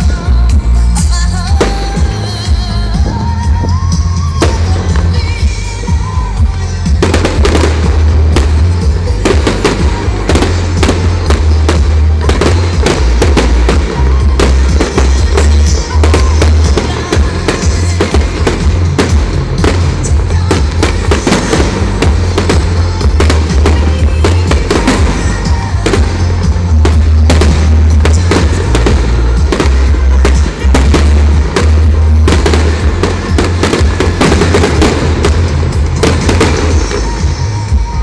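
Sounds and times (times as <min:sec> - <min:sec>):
fireworks bangs and crackling: 0:00.0 - 0:38.0
music playing: 0:00.0 - 0:38.0.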